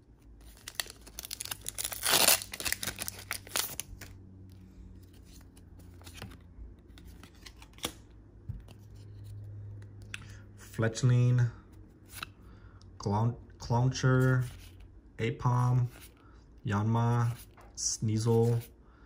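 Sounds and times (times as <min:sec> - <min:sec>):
foil wrapper tearing and crinkling: 0:00.5 - 0:04.0
cards clicking being handled: 0:06.0 - 0:08.8.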